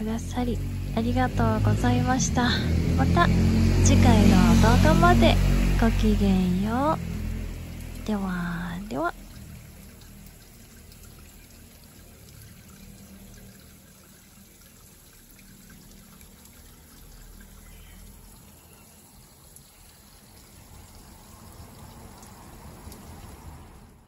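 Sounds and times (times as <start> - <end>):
water trickling and splashing on rocks: 0.0 - 24.0.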